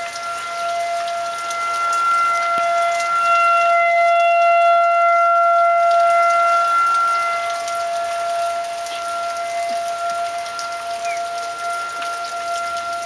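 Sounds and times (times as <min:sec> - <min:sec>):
light rain: 0:00.0 - 0:13.0
steady siren tone: 0:00.0 - 0:13.0.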